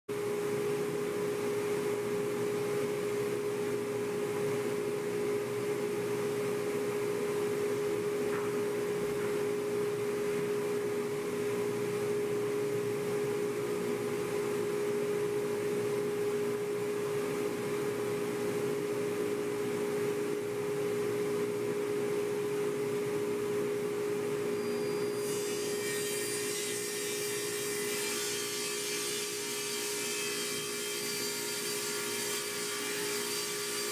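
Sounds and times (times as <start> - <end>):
table saw humming: 24.6 - 33.9.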